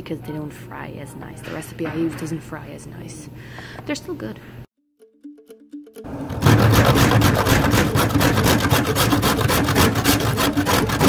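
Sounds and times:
grating on kitchen grater: 6.4 - 11.0.

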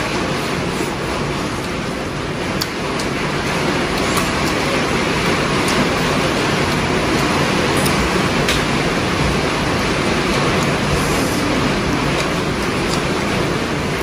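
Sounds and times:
heavy rain hissing: 0.0 - 14.0.

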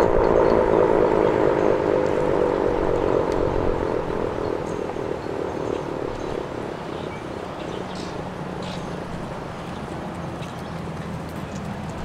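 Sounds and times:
warning siren winding down: 0.0 - 5.3.

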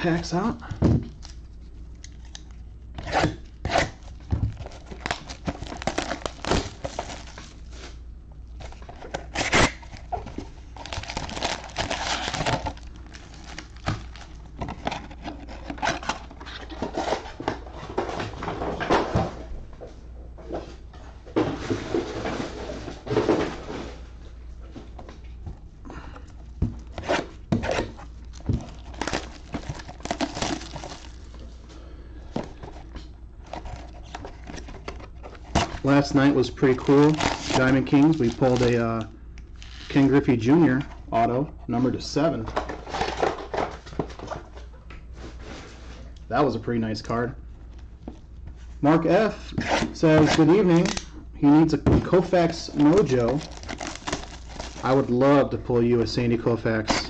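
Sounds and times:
cardboard and plastic wrap crinkling: 1.1 - 19.1, 26.6 - 31.6, 32.4 - 40.8, 48.1 - 51.1, 51.7 - 57.0.

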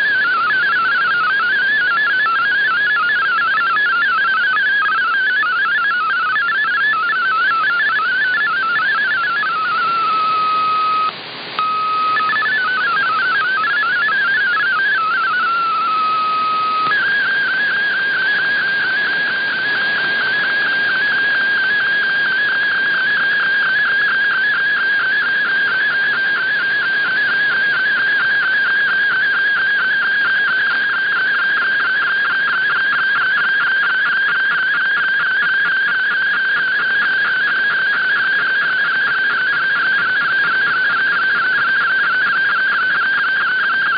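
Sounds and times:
hopping digital data tones: 0.0 - 23.8
radio hiss: 0.0 - 43.9.

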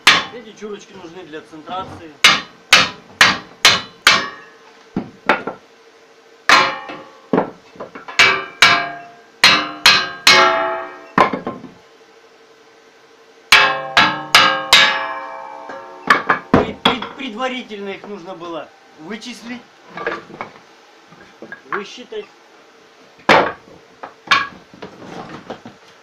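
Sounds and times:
hammer striking ringing steel: 2.3 - 4.6, 6.5 - 7.2, 8.2 - 11.2, 13.6 - 17.0.

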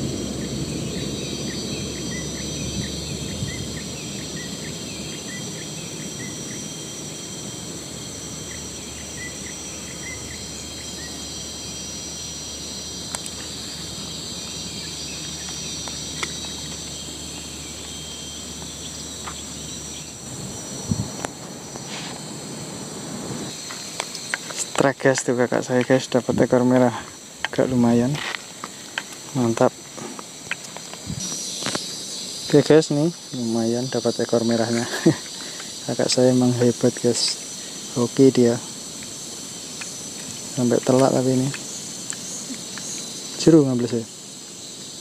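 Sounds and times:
high-pitched insect drone: 0.0 - 45.0
short insect chirps: 0.0 - 45.0.

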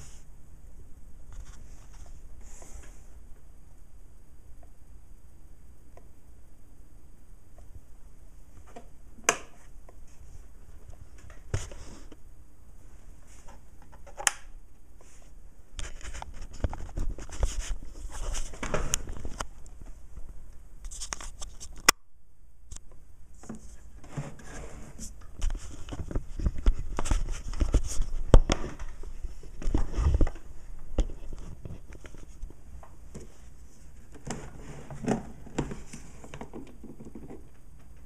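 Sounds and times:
rustling and scraping of handling: 1.3 - 3.2, 8.5 - 12.2, 12.8 - 14.2, 14.9 - 21.9, 23.3 - 38.0.

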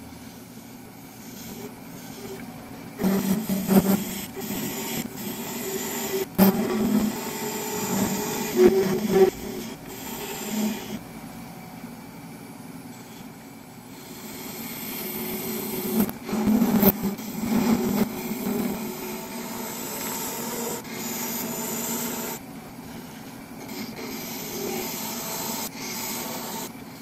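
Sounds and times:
lathe tool scraping brass: 3.0 - 11.0, 13.9 - 22.4, 23.0 - 26.8.

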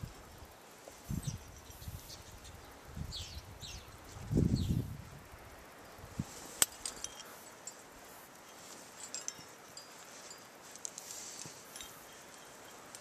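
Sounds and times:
metal climbing gear clinking: 6.5 - 13.0.

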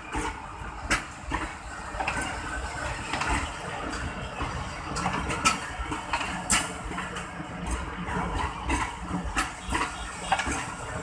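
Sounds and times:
train rumbling slowly: 0.0 - 11.0
train wheels clanking and clattering: 0.0 - 11.0.

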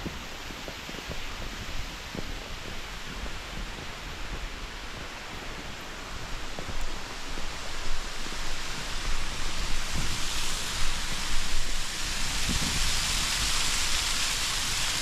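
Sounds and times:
wind rumbling on microphone: 0.0 - 15.0
waterfall rushing: 5.9 - 15.0.

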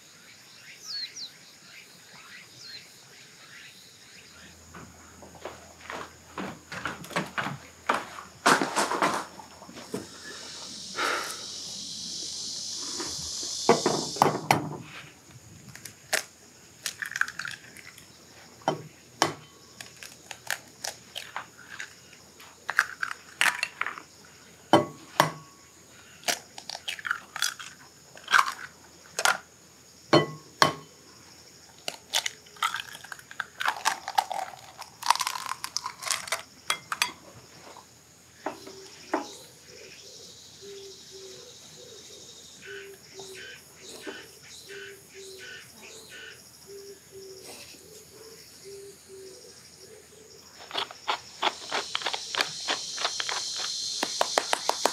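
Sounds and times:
eggshells cracking: 15.7 - 18.1, 19.2 - 22.0, 22.7 - 24.1, 26.2 - 29.4, 31.8 - 37.0, 50.6 - 54.9
eggshell rustling apart: 19.8 - 22.0, 31.8 - 36.5, 50.6 - 54.9.

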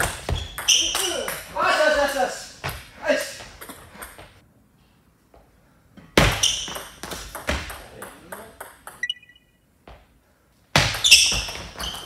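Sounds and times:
table tennis ball hits and bounces: 0.0 - 1.5, 2.6 - 4.2, 6.2 - 9.5, 10.8 - 12.0.

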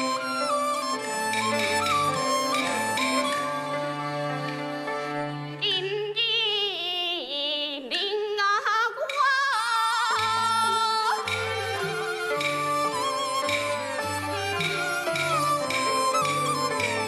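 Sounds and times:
traditional instrumental accompaniment: 0.0 - 6.6, 9.4 - 17.0
woman singing opera with vibrato: 5.6 - 12.3.

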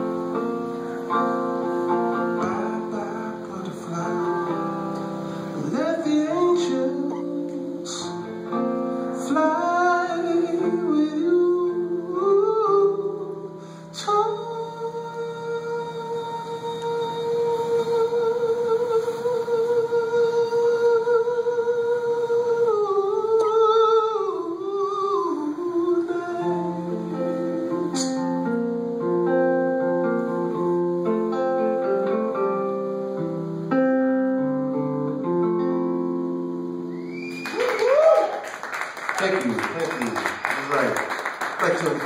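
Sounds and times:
man singing: 2.1 - 28.8
fingerpicked acoustic guitar: 25.0 - 37.1.

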